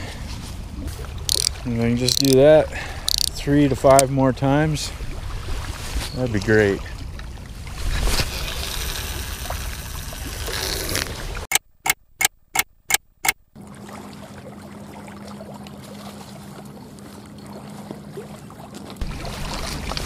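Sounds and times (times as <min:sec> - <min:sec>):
small waves lapping: 0:00.0 - 0:11.5, 0:13.5 - 0:20.0
wind: 0:00.0 - 0:20.0
sharp clicks: 0:01.3 - 0:02.4, 0:03.1 - 0:03.4, 0:11.5 - 0:13.4.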